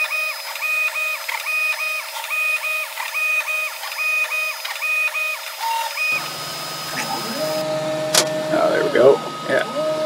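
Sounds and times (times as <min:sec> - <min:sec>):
stepper motors whining: 0:00.0 - 0:10.0
steady hum: 0:06.1 - 0:10.0.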